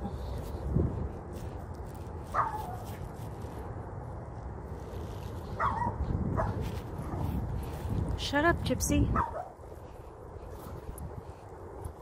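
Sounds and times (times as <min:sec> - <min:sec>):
dog yipping: 0:02.3 - 0:02.9, 0:05.6 - 0:06.6, 0:09.2 - 0:09.5.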